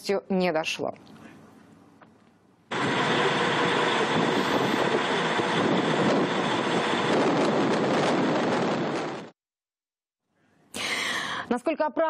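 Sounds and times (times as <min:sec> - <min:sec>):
boat engines rushing: 0:02.7 - 0:09.2
wind: 0:02.7 - 0:09.3.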